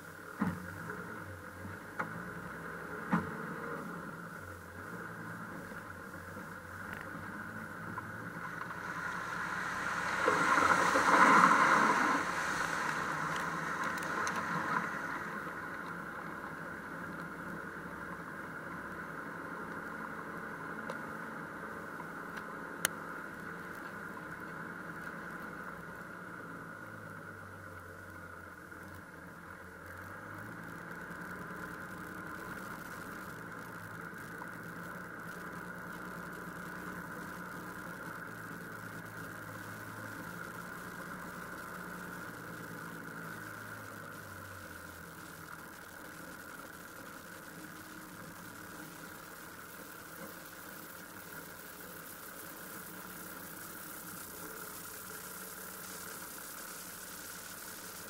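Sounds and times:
off-road vehicle engine running: 0.0 - 58.0
vehicle splashing through puddle: 7.3 - 17.1.

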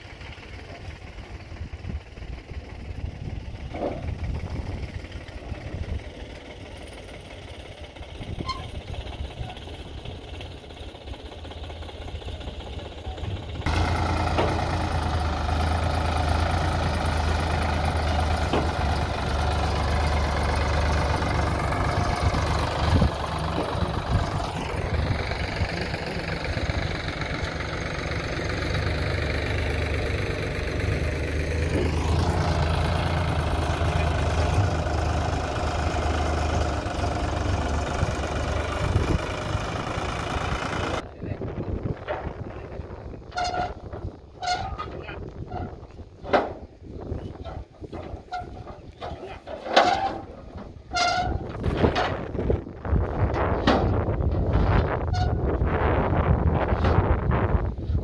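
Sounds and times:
engine knocks: 0.0 - 41.1, 41.9 - 57.4
diesel tractor engine running: 0.0 - 58.0.

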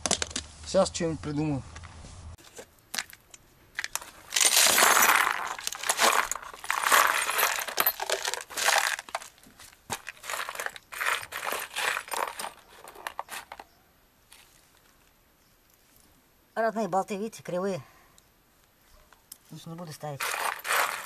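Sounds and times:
hardware clinking and rattling: 2.9 - 13.7, 20.2 - 21.0
metal bolts poured onto cardboard: 3.8 - 13.6, 20.2 - 21.0.

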